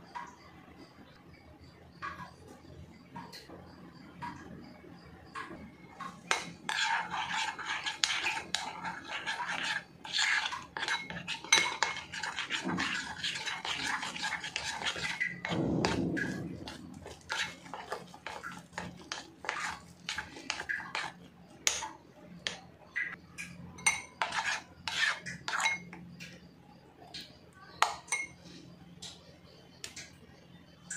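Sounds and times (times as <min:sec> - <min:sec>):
spoon scraping glass bowl: 0:06.0 - 0:26.0, 0:27.8 - 0:28.4
spoon clinking on bowl: 0:06.3 - 0:21.1, 0:22.4 - 0:26.0, 0:27.2 - 0:28.4.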